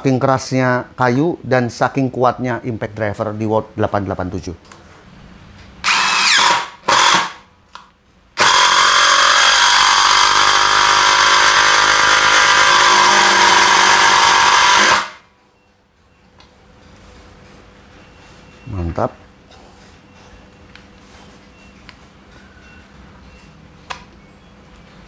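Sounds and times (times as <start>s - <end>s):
impact driver driving screw into wood: 5.8s - 7.4s, 8.4s - 15.2s.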